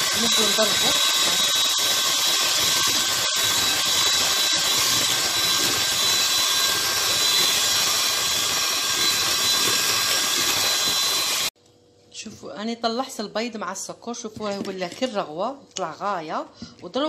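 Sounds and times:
electric hand mixer whirring: 0:00.0 - 0:11.6.

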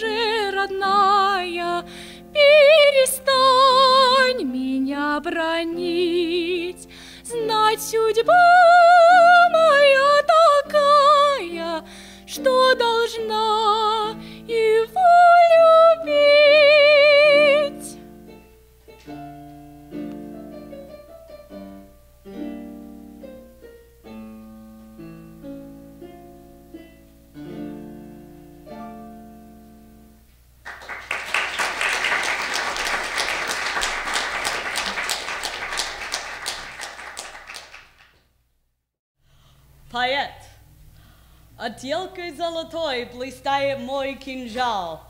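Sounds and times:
woman singing with vibrato: 0:00.0 - 0:18.0
instrumental accompaniment: 0:17.4 - 0:31.0
audience applauding: 0:30.6 - 0:38.2.

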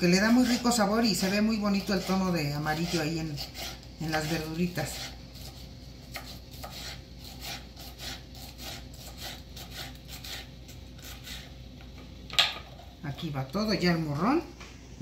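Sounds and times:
knife slicing on wooden board: 0:01.9 - 0:11.5.

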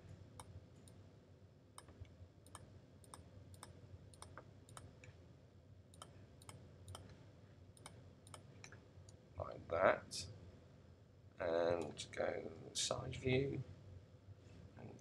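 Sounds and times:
computer mouse clicks: 0:01.8 - 0:05.2, 0:05.9 - 0:07.2, 0:07.8 - 0:08.8.

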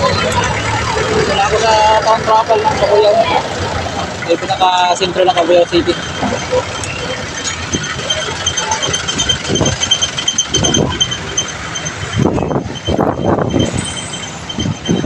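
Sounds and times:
vehicle engines running: 0:00.0 - 0:15.0
faint high repeating chirp: 0:05.8 - 0:15.0.

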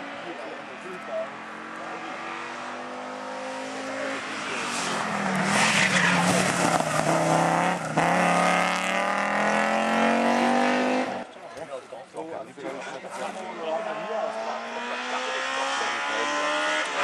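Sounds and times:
rally car engine accelerating: 0:01.6 - 0:11.3, 0:13.8 - 0:17.0.

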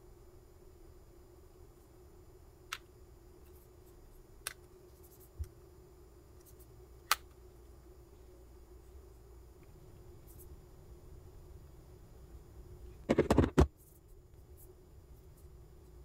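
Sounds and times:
faint steady hum: 0:00.0 - 0:16.0
phones clicking and tapping: 0:13.1 - 0:13.7.

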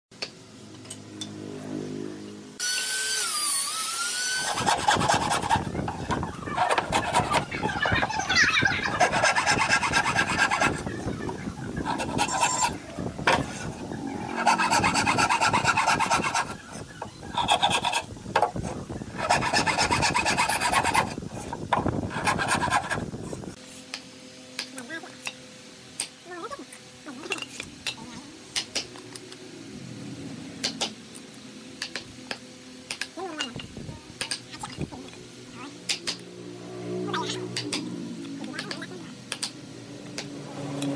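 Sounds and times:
hand saw cutting wood: 0:02.6 - 0:05.9, 0:06.6 - 0:07.5, 0:08.8 - 0:10.9, 0:11.8 - 0:13.7, 0:14.3 - 0:18.1, 0:19.2 - 0:23.1.

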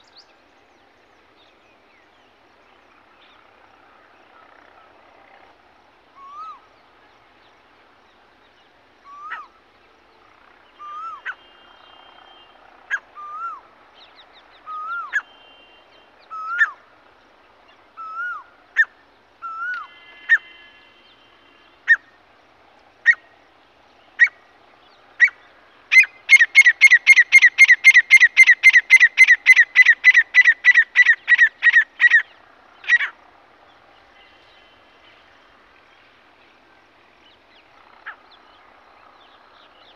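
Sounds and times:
francolin calling whistled notes: 0:25.2 - 0:32.3.

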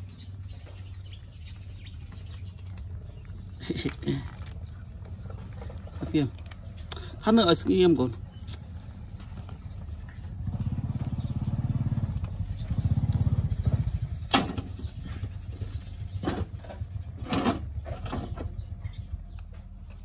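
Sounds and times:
small engine pulsing: 0:08.8 - 0:18.7.

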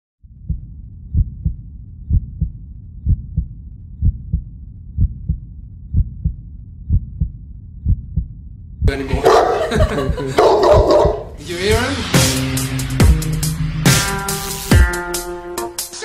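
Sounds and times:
heartbeat double thump: 0:00.3 - 0:09.0, 0:09.8 - 0:11.3.

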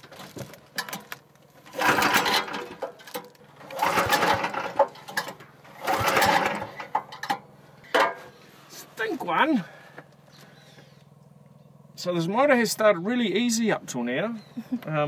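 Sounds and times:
small engine pull-start: 0:00.2 - 0:07.4.

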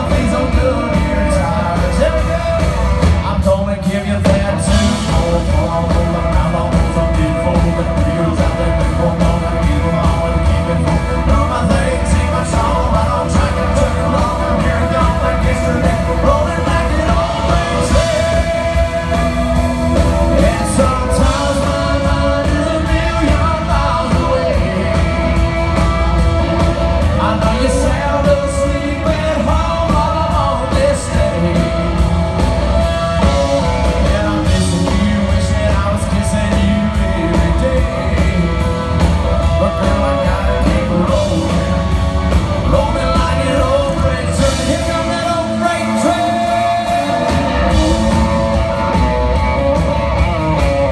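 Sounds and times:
acoustic and electric guitars: 0:00.0 - 0:50.9
drum kit: 0:00.0 - 0:50.9
man singing: 0:00.0 - 0:50.9.

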